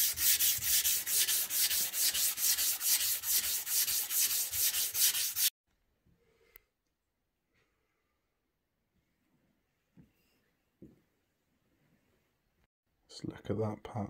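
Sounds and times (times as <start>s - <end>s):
sandpaper rubbing: 0.0s - 5.5s.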